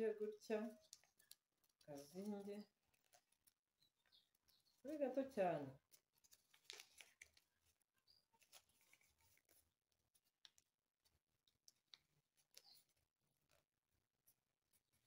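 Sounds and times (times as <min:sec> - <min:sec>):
paper being folded: 0:00.8 - 0:04.8, 0:05.9 - 0:13.6.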